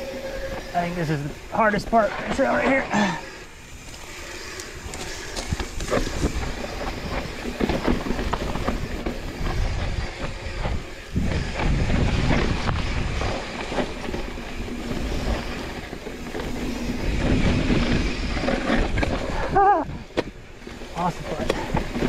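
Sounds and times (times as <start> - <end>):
bike rattling and clicking: 0.0 - 22.0
bike tyres rumbling over dirt: 0.0 - 22.0.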